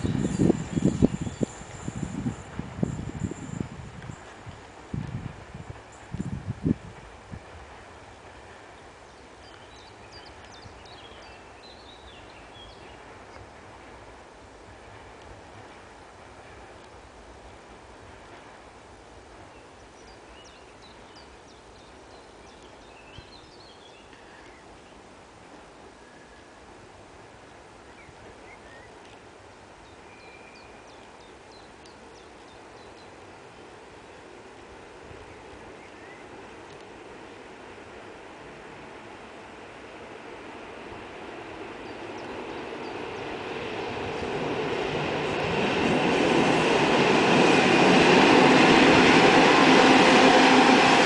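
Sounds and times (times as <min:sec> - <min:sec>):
low outdoor background noise: 0:06.9 - 0:51.0
songbirds chirping: 0:19.5 - 0:25.0.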